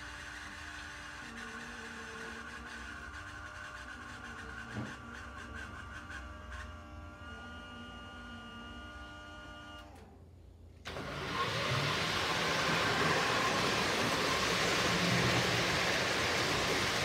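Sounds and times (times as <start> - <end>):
model locomotive electronic hum: 0.0 - 10.1, 10.9 - 17.0
model train rolling on track: 10.9 - 17.0.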